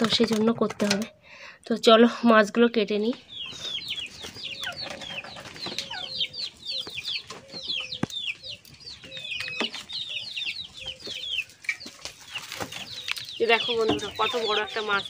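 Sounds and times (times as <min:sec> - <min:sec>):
chickens cheeping: 0:03.1 - 0:15.0.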